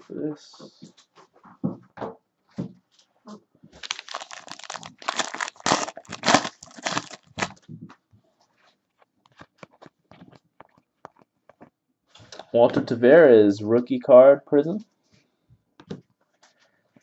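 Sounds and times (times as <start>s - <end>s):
foil wrapper tearing and crinkling: 3.8s - 7.6s.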